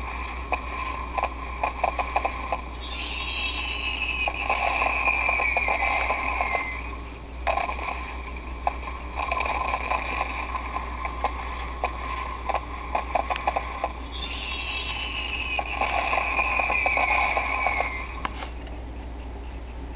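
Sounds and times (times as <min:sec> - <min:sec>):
low steady hum: 0:00.0 - 0:19.9
electronic falling whistle: 0:02.7 - 0:07.9, 0:14.0 - 0:18.2.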